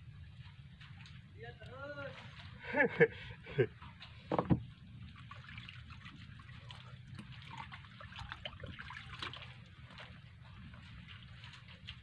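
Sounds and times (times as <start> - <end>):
low steady rumble: 0.0 - 12.0
small splashes and drips: 0.0 - 12.0
water lapping and trickling: 0.0 - 12.0.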